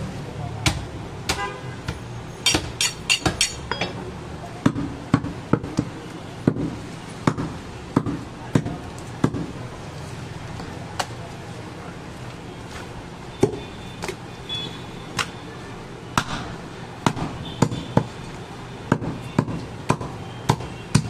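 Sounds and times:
cleaver chopping on wooden block: 0.6s - 3.7s, 6.5s - 9.5s, 18.9s - 21.0s.

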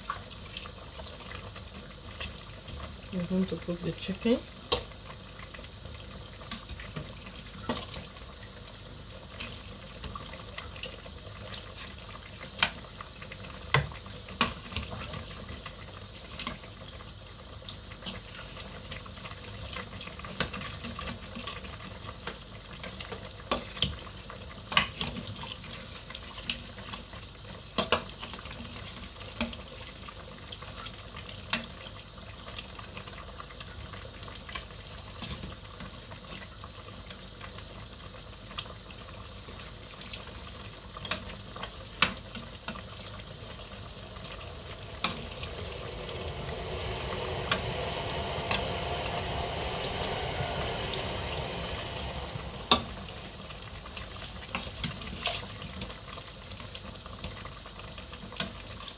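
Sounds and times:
stew bubbling: 51.6s - 58.9s.

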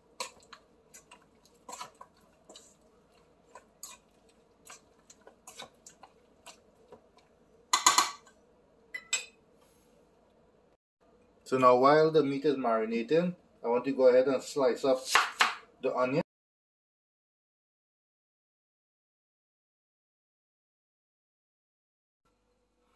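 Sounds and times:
scraping rush in bowl: 0.0s - 6.8s.

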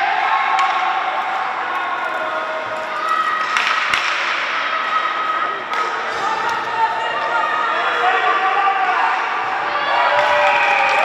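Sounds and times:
hockey sticks and puck knocking: 0.5s - 2.2s, 3.0s - 4.6s.

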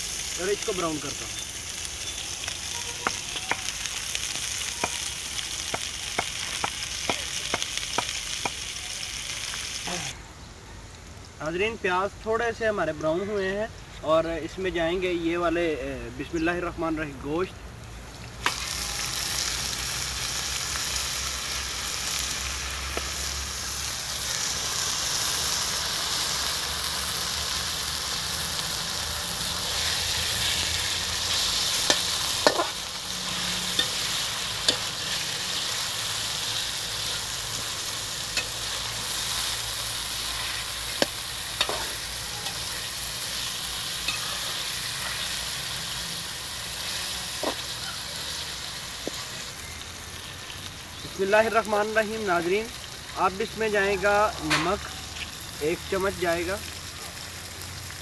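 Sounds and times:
meat and onions sizzling in oil: 0.0s - 58.0s
metal spoon clinking on pan: 38.3s - 38.6s.

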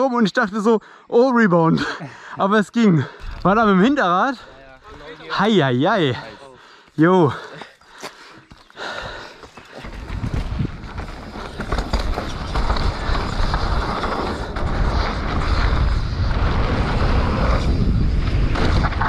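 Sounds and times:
bicycle tyre and drivetrain rattle: 3.0s - 19.0s
wind rushing over microphone: 9.8s - 19.0s.

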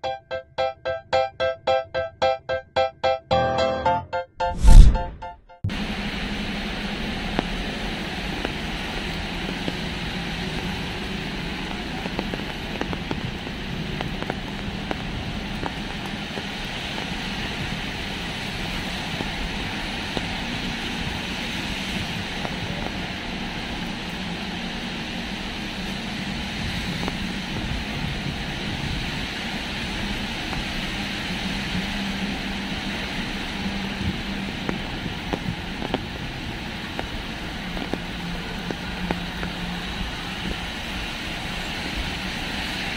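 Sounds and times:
rain: 5.7s - 42.9s
traffic on wet road: 5.7s - 42.9s.

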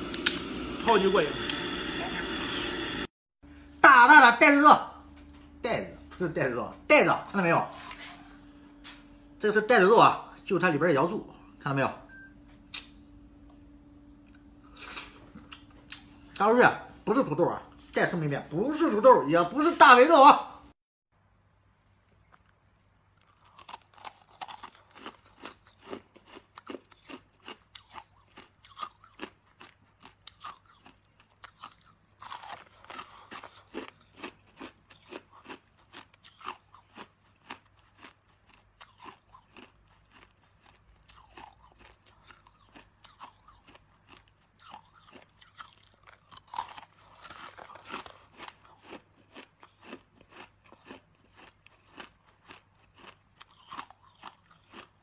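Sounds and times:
hard candy crunching: 22.2s - 55.0s.

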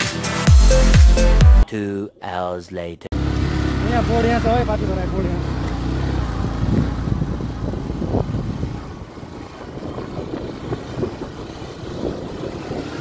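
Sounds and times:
motorcycle engine low rumble: 3.1s - 13.0s.

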